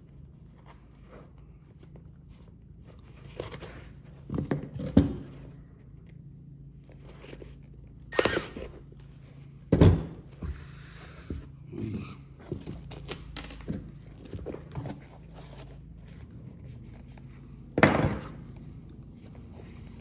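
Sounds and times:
faint steady hum: 0:00.0 - 0:20.0
fabric and leather rustling: 0:18.3 - 0:20.0.

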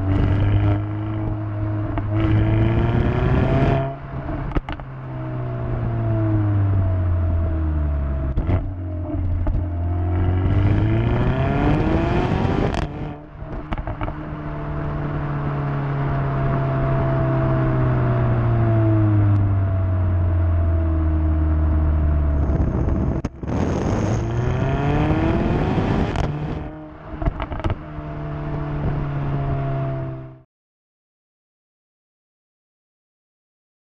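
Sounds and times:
exhaust crackles and pops: 0:00.0 - 0:05.3, 0:08.2 - 0:14.4, 0:21.7 - 0:29.1
car engine revving: 0:00.0 - 0:30.4
road noise: 0:00.0 - 0:30.4.

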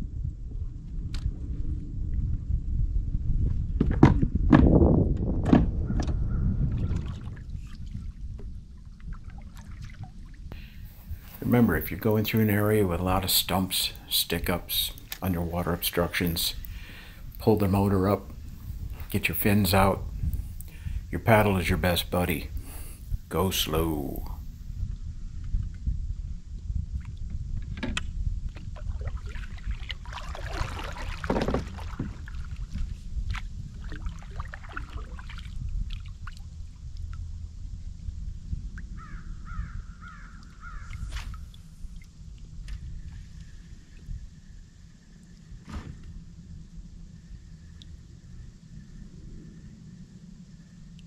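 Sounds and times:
low rumble: 0:00.0 - 0:40.0
paddle dipping in water: 0:06.6 - 0:12.4, 0:28.5 - 0:36.5.

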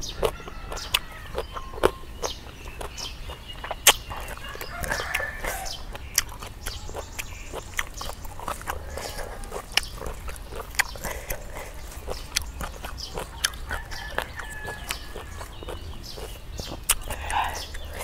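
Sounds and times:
chewing and mouth smacking: 0:00.0 - 0:18.0
sharp wet clicks: 0:00.0 - 0:18.0.

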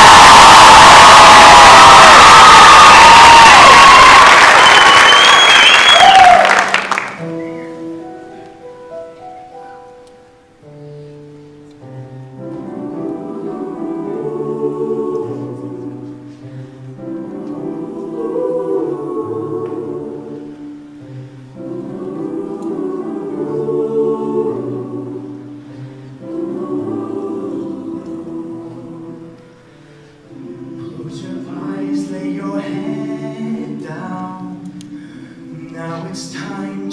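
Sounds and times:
choir singing held chords: 0:00.0 - 0:04.7, 0:12.5 - 0:36.9.

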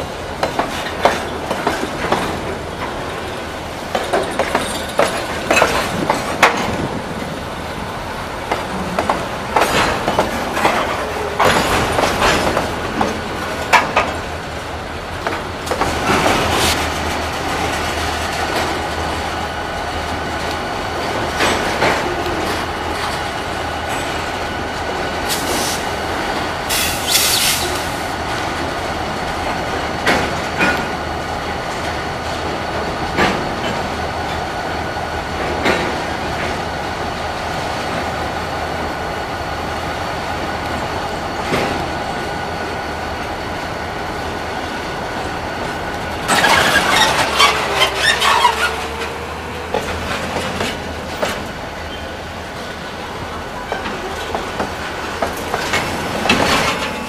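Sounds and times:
freight train rumbling past: 0:00.0 - 0:57.0
wheels clacking over rail joints: 0:00.1 - 0:34.5, 0:35.3 - 0:36.8, 0:44.2 - 0:57.0
wheel squeal: 0:46.3 - 0:49.2.

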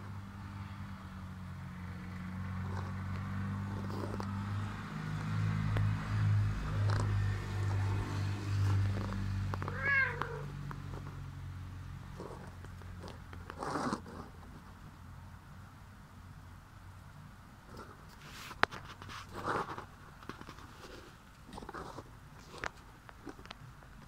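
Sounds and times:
cat meowing: 0:09.6 - 0:10.5.

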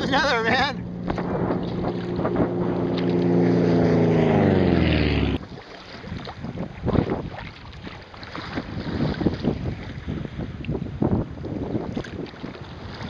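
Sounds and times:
airplane engine droning overhead: 0:00.0 - 0:05.4
water lapping: 0:00.0 - 0:13.0
water splashes: 0:00.0 - 0:13.0
wind on microphone: 0:00.0 - 0:13.0.

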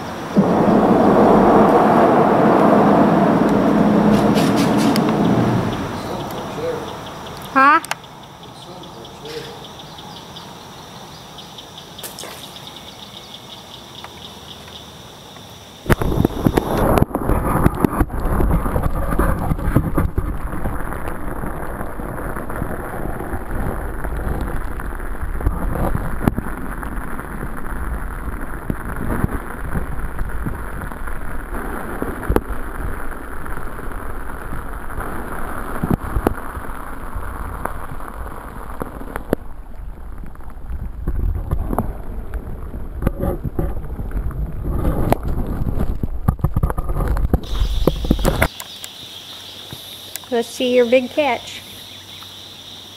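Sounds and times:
water rushing underwater: 0:00.0 - 0:07.2.

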